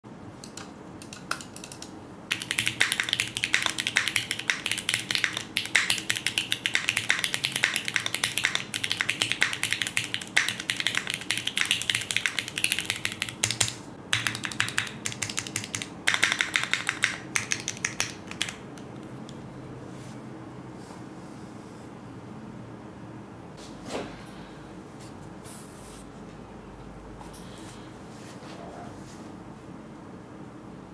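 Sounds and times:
mechanical keyboard typing clacks: 0:00.4 - 0:19.0.

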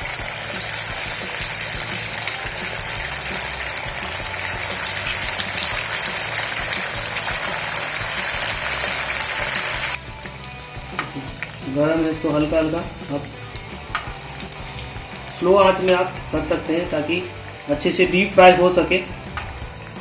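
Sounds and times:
food deep-frying in hot oil: 0:00.0 - 0:20.0.

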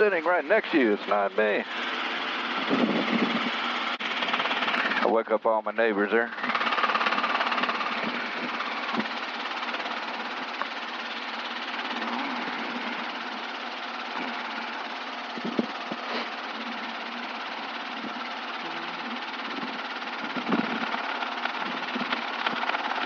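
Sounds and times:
helicopter engine and rotor: 0:00.0 - 0:23.0.

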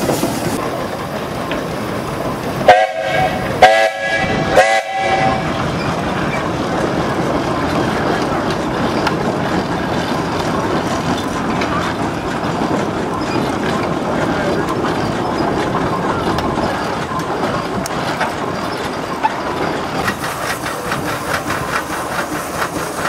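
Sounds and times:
steam engines running: 0:00.0 - 0:23.0
steam engine whistle blasts: 0:02.7 - 0:05.5.

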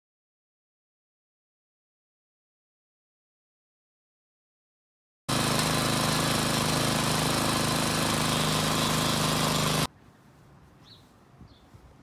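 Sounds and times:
rototiller engine running: 0:05.3 - 0:09.9
bird chirp: 0:10.7 - 0:12.0.

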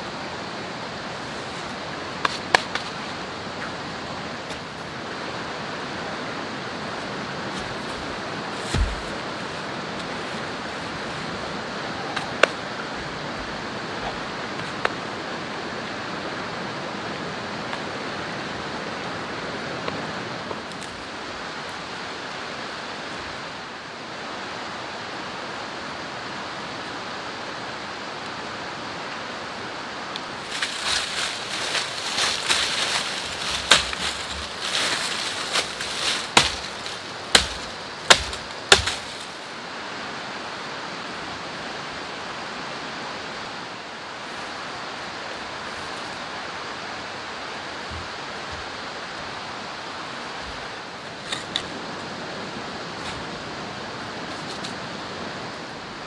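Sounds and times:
shallow river rushing: 0:00.0 - 0:56.0
twigs crackling and snapping: 0:30.2 - 0:39.5.

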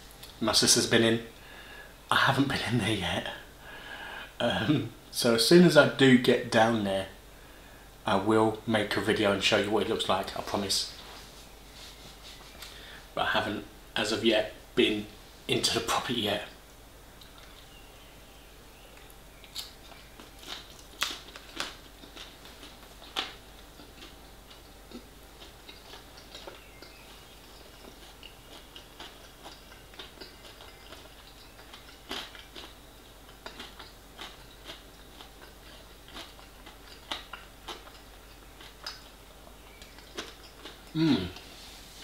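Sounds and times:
person chewing food: 0:17.2 - 0:17.9, 0:18.9 - 0:42.0.

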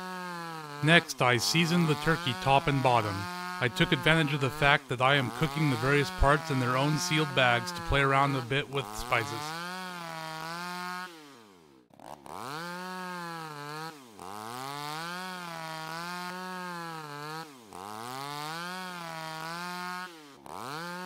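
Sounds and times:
electric carving knife buzzing: 0:00.0 - 0:11.5.

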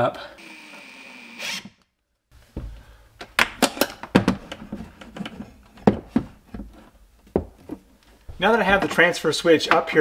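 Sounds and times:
cordless drill whine: 0:00.4 - 0:01.8.

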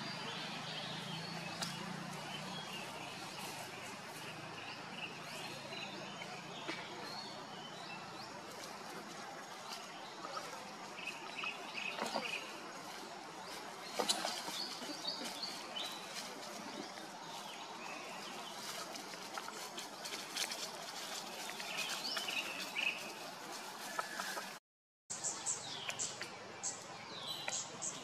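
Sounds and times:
birds chirping: 0:00.0 - 0:28.0
outdoor background noise: 0:00.0 - 0:28.0
dry leaves crackling: 0:00.3 - 0:05.5, 0:07.8 - 0:24.6.

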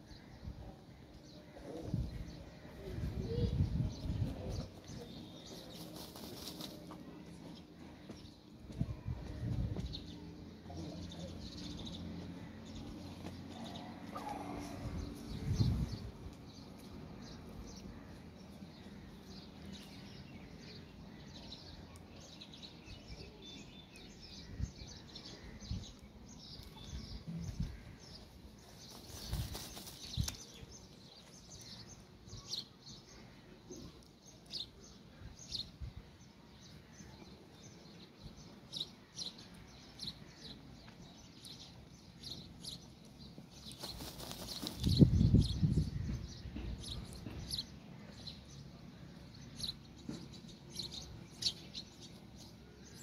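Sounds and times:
small birds chirping: 0:00.0 - 0:53.0
rooster scuffling in dry soil: 0:04.6 - 0:07.5, 0:28.7 - 0:30.4, 0:43.6 - 0:44.9.

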